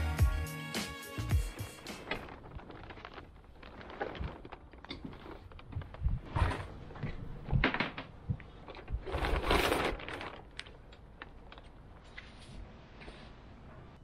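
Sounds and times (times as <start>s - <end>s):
sail cloth rustling: 1.6s - 11.4s.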